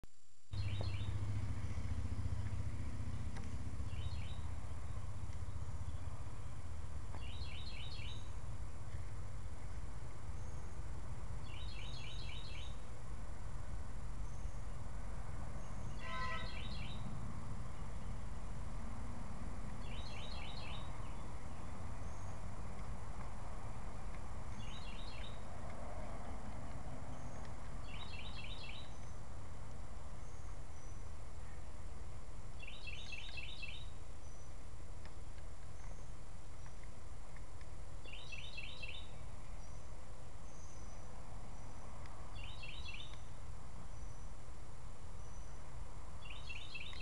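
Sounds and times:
low rumble: 0.5 - 32.5
songbird chirping: 0.5 - 47.0
lower bird call: 0.6 - 9.0, 15.6 - 17.1.

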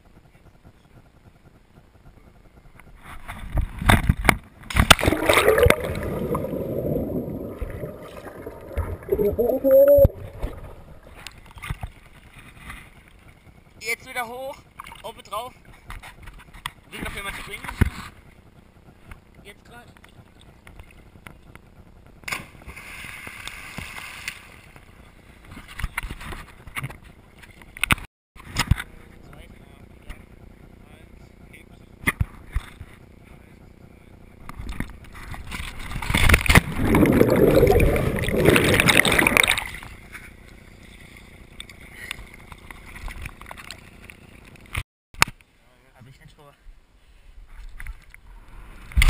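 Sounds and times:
body splashing into pool: 4.7 - 11.2, 36.2 - 39.8
muffled underwater bubbling: 4.9 - 11.3, 36.5 - 39.8.

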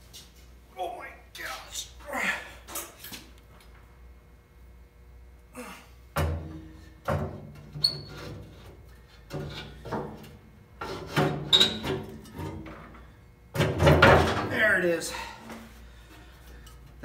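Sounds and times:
metal thunks and clanks: 6.2 - 7.8, 13.5 - 14.6.

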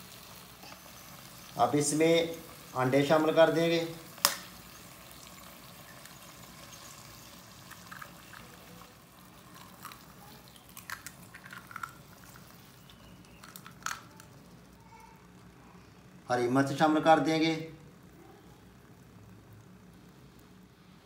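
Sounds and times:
oil sizzling: 0.0 - 15.5.

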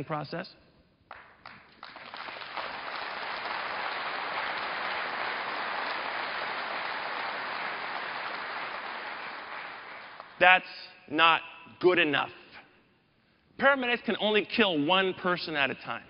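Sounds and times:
audience applauding: 1.1 - 10.4.

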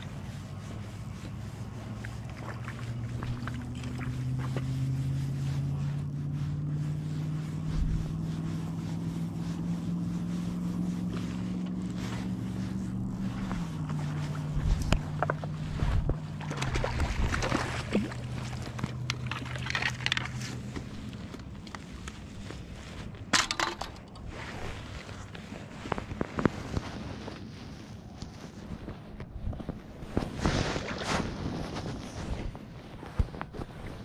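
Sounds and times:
boat motor droning: 0.0 - 23.8
knocks and scrapes on rocks: 1.0 - 4.7, 10.8 - 34.0
fish splashing: 1.9 - 4.5, 13.4 - 20.4.

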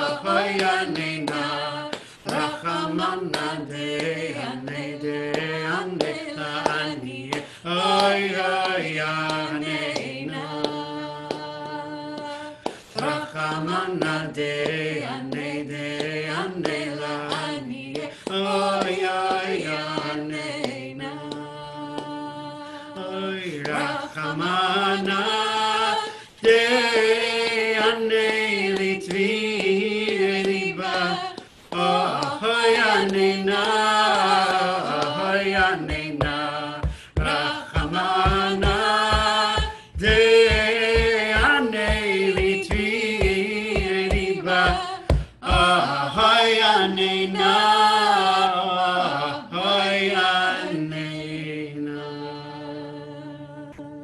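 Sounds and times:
low steady beat: 35.6 - 45.9
person singing slow melody: 52.3 - 54.0.

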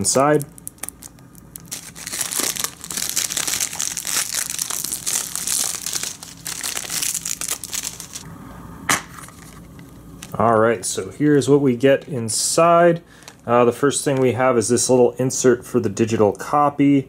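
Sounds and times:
plastic wrap crinkling: 0.0 - 8.2.

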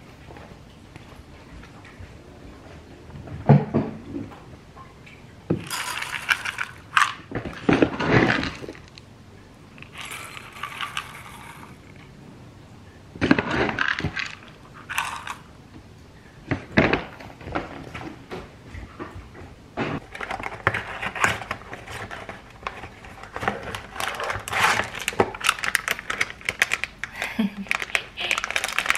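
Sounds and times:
kibble rattling into bowls: 5.6 - 9.0, 9.8 - 12.1, 13.4 - 15.5, 20.0 - 28.9.

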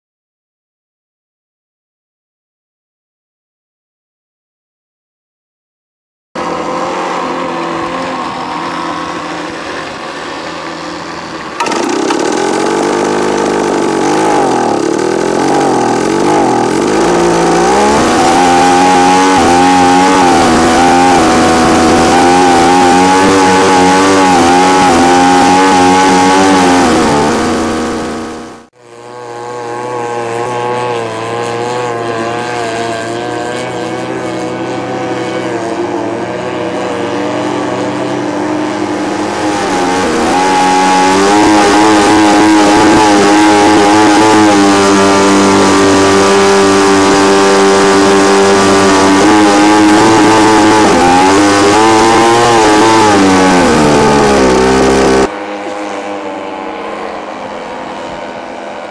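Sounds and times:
distant speedboat engine: 6.4 - 58.9
speedboat engine running: 6.4 - 58.9
water and wind rush: 30.0 - 53.6, 54.2 - 58.9.

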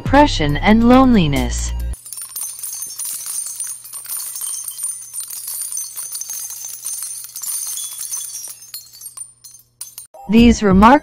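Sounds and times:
small bells jingling: 1.8 - 10.2.

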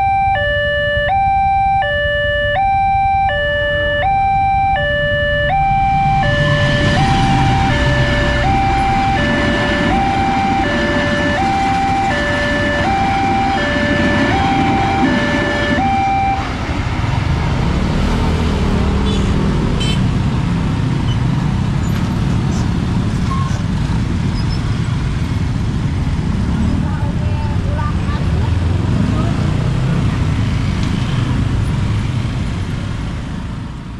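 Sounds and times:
level-crossing two-tone alarm: 0.0 - 16.6
motorcycle and car engines: 0.0 - 33.9
passing train rumble: 4.9 - 33.9.

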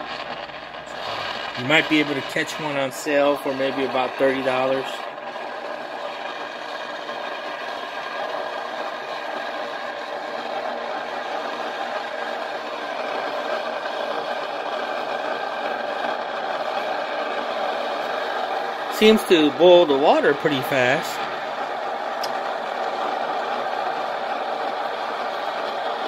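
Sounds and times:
coffee maker humming: 0.0 - 26.0.

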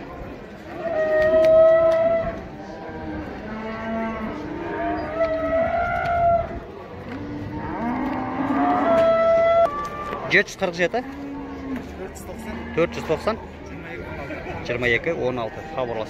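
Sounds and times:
young cattle mooing: 0.7 - 10.1.

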